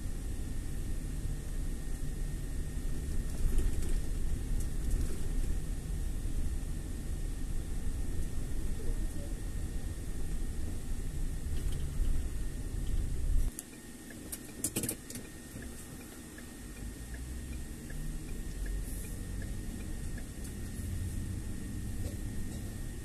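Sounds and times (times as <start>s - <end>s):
car road noise rumble: 0.0s - 23.0s
faint ticks: 12.9s - 20.8s.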